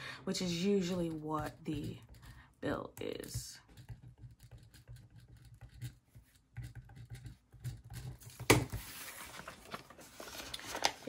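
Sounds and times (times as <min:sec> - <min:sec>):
pen scratching on paper: 0:03.7 - 0:08.3.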